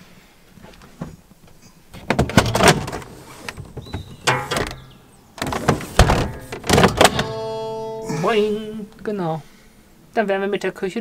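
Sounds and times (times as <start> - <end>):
roof hatch sliding and rattling: 0.6 - 7.8.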